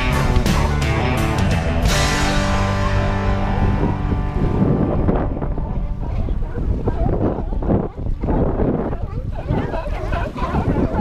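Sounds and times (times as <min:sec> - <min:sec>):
held chord of background song: 0:00.0 - 0:06.8
wind buffeting microphone: 0:01.9 - 0:11.0.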